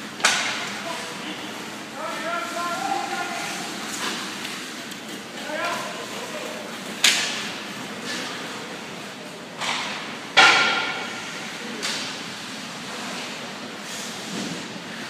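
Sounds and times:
rink background hum: 0.0 - 15.0.

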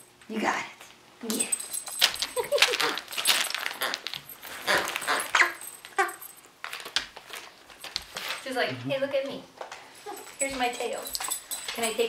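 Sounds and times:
dogs scuffling and rustling: 1.5 - 12.0
dog whine: 3.7 - 6.2.

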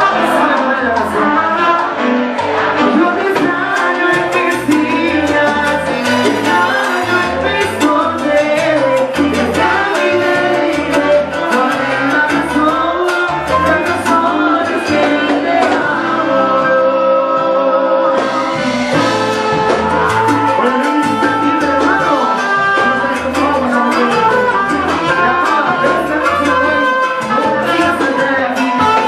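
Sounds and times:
percussion strikes: 0.0 - 17.0, 18.1 - 29.0
bass line: 0.0 - 29.0
lead vocal singing: 0.0 - 29.0
salsa band playing: 0.0 - 29.0.

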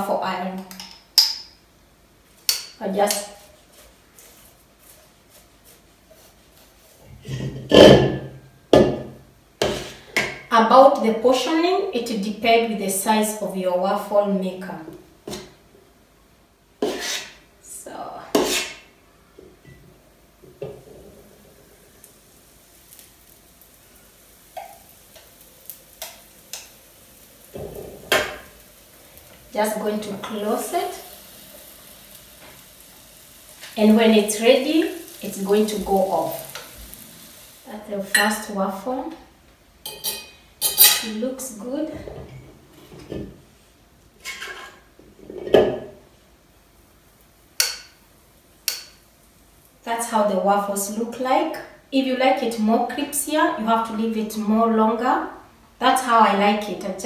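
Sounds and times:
ladle scraping metal bowl: 16.8 - 17.4, 18.4 - 18.9.

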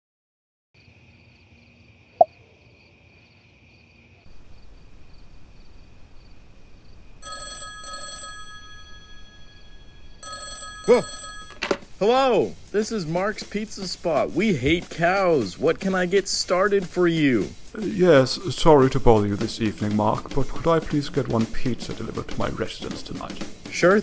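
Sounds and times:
faint steady hiss: 3.0 - 7.3, 11.8 - 24.0
desk telephone ringing: 7.2 - 11.9.

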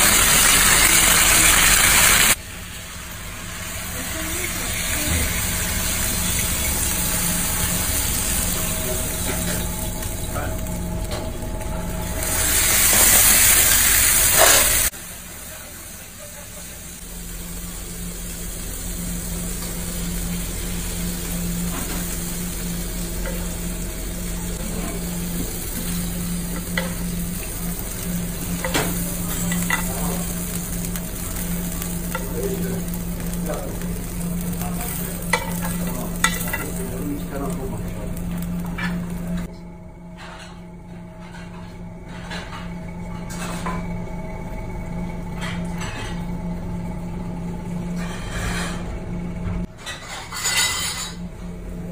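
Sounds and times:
fish sizzling in hot oil: 0.0 - 10.2, 12.0 - 39.4.

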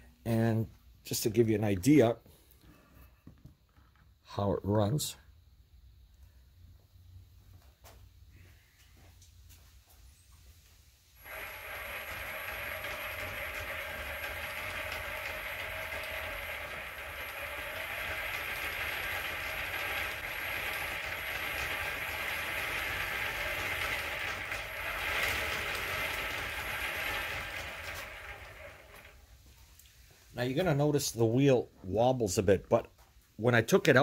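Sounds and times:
chain and sprocket rattle: 11.2 - 29.2
electric motor whine: 11.2 - 29.2.

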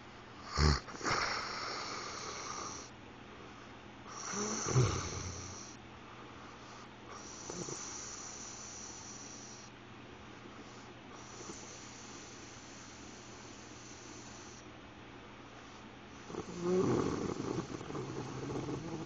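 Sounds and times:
man snoring with snorts: 0.5 - 2.9, 4.1 - 5.8, 7.2 - 9.6, 16.2 - 19.0
airy hissing breath: 4.1 - 5.8, 6.4 - 9.7, 10.6 - 14.7.

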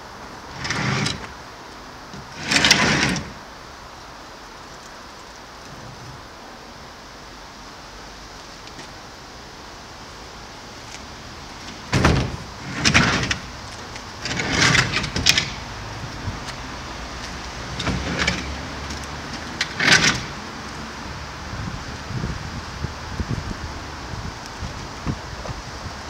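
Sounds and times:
wooden pallet scraping over asphalt: 0.5 - 1.4, 2.1 - 3.4, 11.6 - 20.7.

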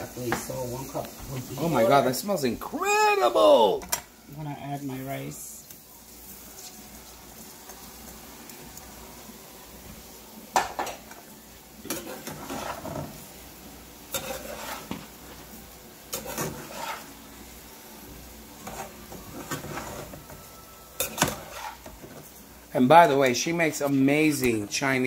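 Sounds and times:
faint sizzle: 0.0 - 25.0
metal spoon scraping a pot: 11.9 - 13.1, 14.1 - 15.0, 16.1 - 17.1, 18.6 - 20.4, 21.0 - 22.2.

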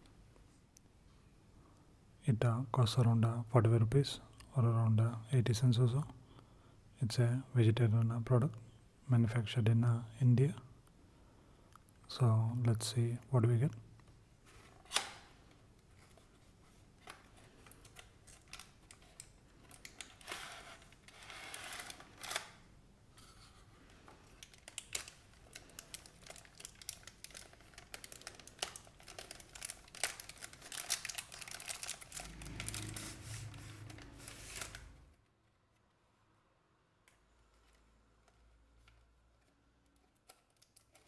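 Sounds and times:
handling cardboard and plastic packaging: 14.4 - 22.5, 23.2 - 35.2, 37.3 - 41.0
foil wrapper crinkling and tearing: 24.4 - 35.0.

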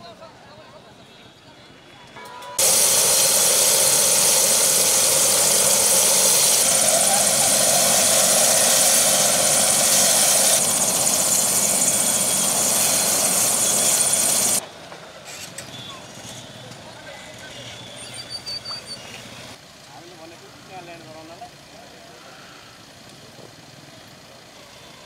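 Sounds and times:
helicopter rotor rushing and whining: 2.6 - 14.6.

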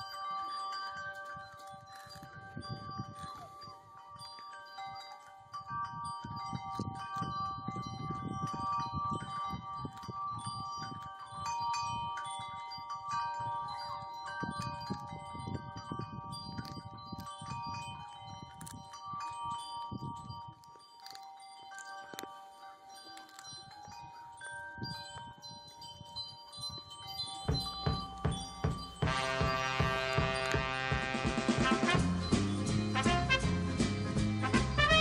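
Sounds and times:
cat chewing and crunching: 0.0 - 7.6, 8.4 - 11.3, 16.4 - 26.2, 26.8 - 32.2
chimes ringing: 0.0 - 35.0.

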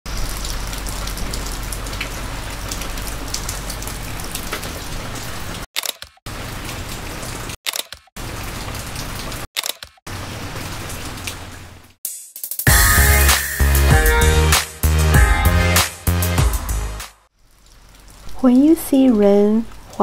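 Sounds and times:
steady rain falling: 0.1 - 5.6, 6.3 - 7.6, 8.2 - 9.5, 10.1 - 11.9, 17.3 - 20.0
raindrops ticking: 0.1 - 10.2, 17.4 - 20.0.

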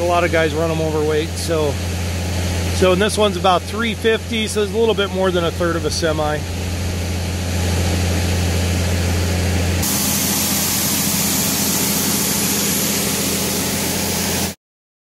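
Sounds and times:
tractor engine humming: 0.0 - 14.6
grain pouring into hopper: 9.8 - 14.6.

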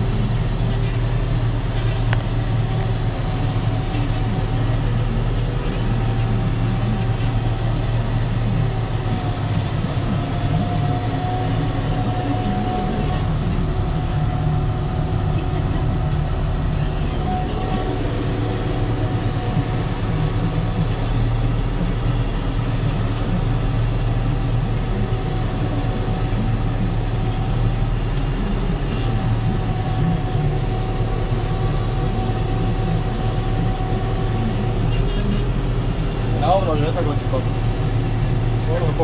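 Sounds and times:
tractor diesel engine: 0.0 - 39.0.

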